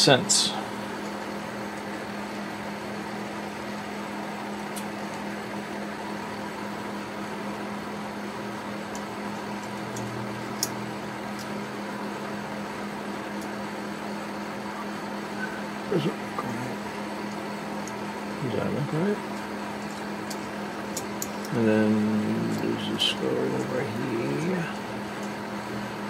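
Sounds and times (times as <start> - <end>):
mechanical room hum: 0.0 - 26.0
small clock parts clicking: 19.4 - 23.8.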